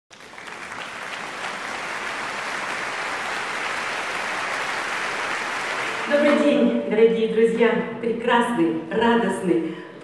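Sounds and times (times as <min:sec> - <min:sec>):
audience applauding: 0:00.1 - 0:06.6.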